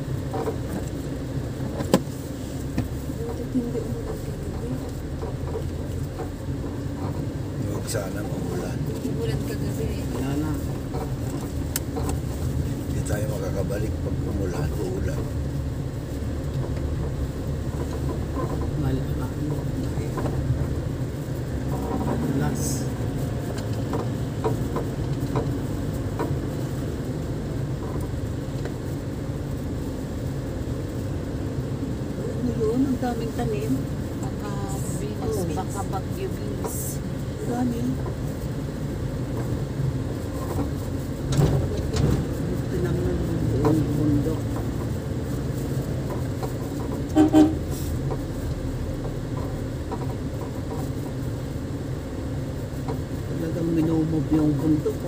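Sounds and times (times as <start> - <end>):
vehicle engine and road rumble: 0.0 - 55.0
vehicle horn toots: 47.1 - 47.8.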